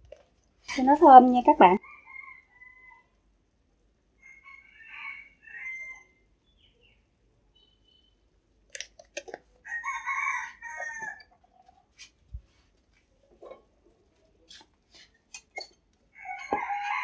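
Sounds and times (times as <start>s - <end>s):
rooster crowing: 1.8s - 3.1s, 4.2s - 6.2s, 9.6s - 11.3s, 16.1s - 17.0s.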